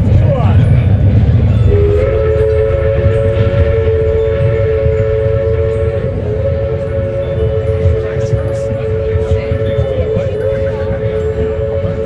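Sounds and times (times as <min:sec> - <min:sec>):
train rumbling: 0:00.0 - 0:12.0
locomotive horn chord: 0:01.6 - 0:12.0.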